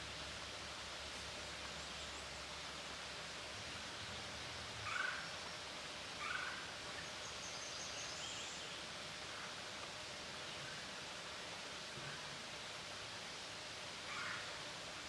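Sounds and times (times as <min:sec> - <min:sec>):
background hiss: 0:00.0 - 0:15.0
bird calls: 0:04.8 - 0:05.4, 0:06.2 - 0:08.8.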